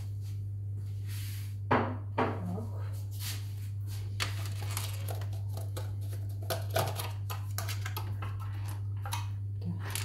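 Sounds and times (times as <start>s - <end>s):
steady low hum: 0.0s - 10.0s
kitchen items rustling and clicking: 4.1s - 10.0s.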